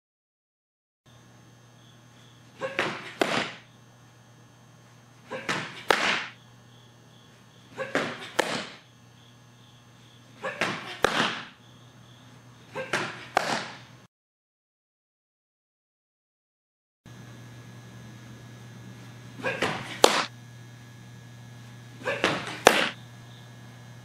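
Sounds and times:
softball pitch crack: 0:02.5 - 0:03.7, 0:05.2 - 0:06.4, 0:07.7 - 0:08.9, 0:10.4 - 0:11.6, 0:12.7 - 0:13.9, 0:19.0 - 0:20.3, 0:22.0 - 0:23.0.

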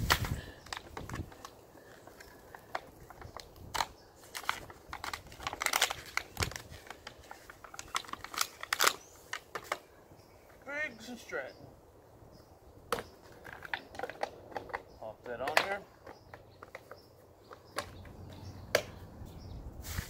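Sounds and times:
plastic bag and paper crinkling: 0:00.0 - 0:09.8.

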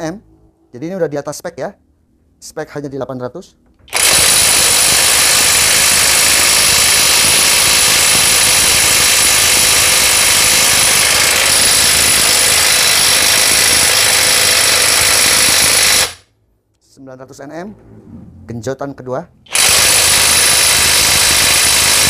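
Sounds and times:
impact wrench hammering: 0:03.9 - 0:16.2, 0:19.5 - 0:22.0.

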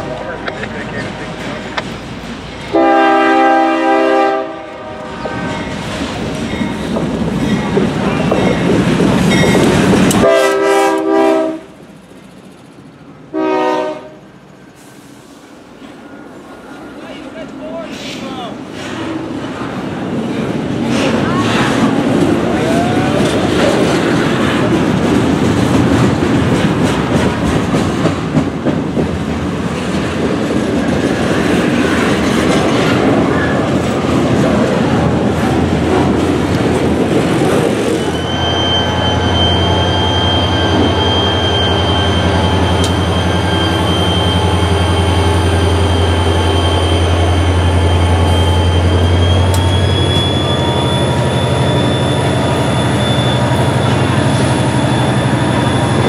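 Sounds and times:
diesel locomotive engine hum: 0:00.0 - 0:56.0
freight train rumbling past: 0:00.0 - 0:56.0.

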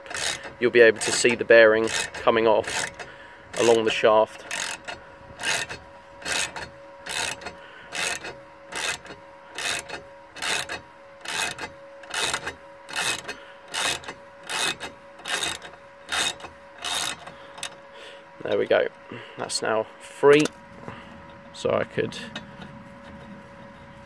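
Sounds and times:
gear puller screw tightening: 0:00.0 - 0:17.8, 0:20.3 - 0:20.6.

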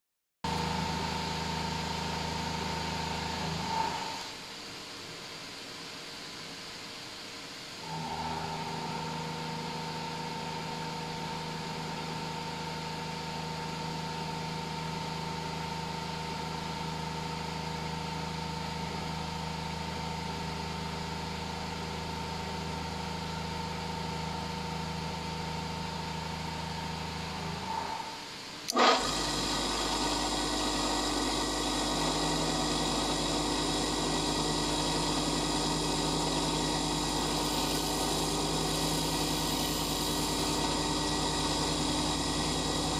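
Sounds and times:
bench grinder humming: 0:28.7 - 0:42.9
drill bit on grinding wheel: 0:28.7 - 0:42.9.

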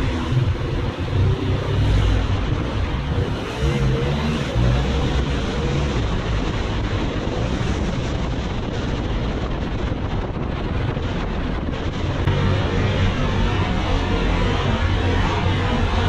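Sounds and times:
road noise: 0:00.0 - 0:16.0
wind rushing over microphone: 0:00.0 - 0:16.0
motorcycle engine: 0:12.0 - 0:16.0.

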